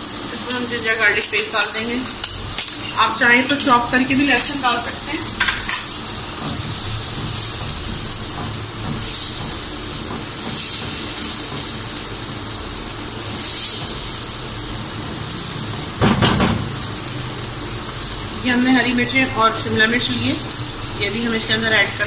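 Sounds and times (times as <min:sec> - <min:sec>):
food sizzling in hot oil: 0:00.0 - 0:22.0
knock: 0:16.0 - 0:16.7.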